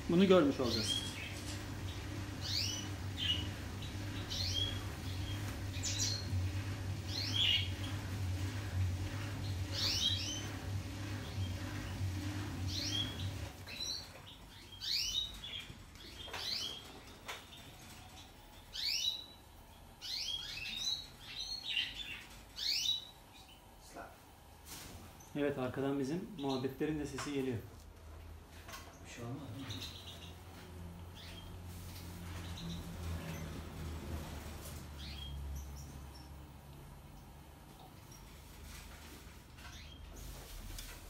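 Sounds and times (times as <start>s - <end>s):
drain pump humming: 0.0s - 15.6s.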